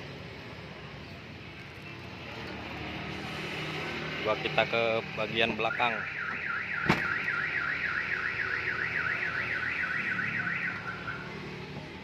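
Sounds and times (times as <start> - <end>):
car alarm siren warbling: 5.6 - 11.5.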